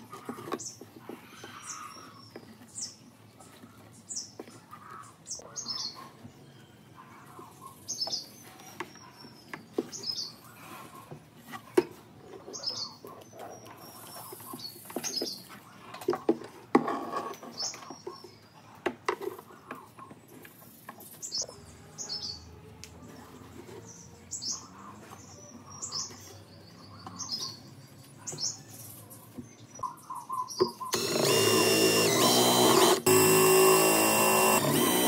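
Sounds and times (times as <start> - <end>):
cordless drill boring into wood: 30.9 - 35.0.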